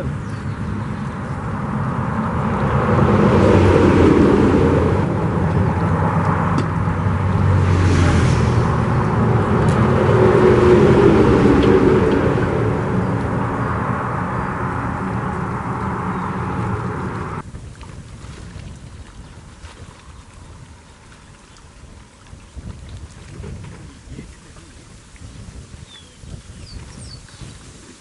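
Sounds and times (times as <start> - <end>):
faint engine hum: 0.0 - 17.4
highway traffic rumble: 0.0 - 28.0.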